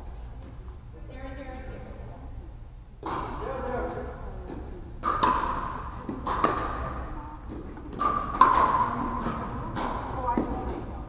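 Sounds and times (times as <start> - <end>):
paddles hitting plastic ball: 3.0 - 11.0.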